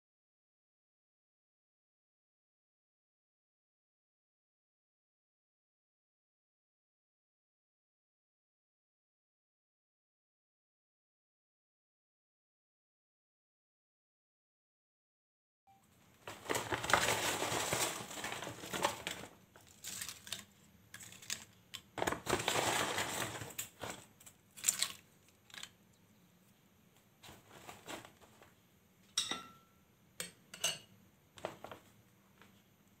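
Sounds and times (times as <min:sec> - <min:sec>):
fried chips crunching: 0:16.3 - 0:25.8
spoon clinking on glass bowl: 0:29.2 - 0:30.9.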